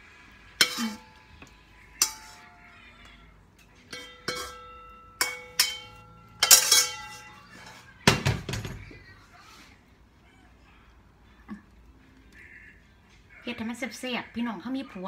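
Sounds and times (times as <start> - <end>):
metal spoon scraping wok: 0.5 - 2.6, 3.9 - 8.0.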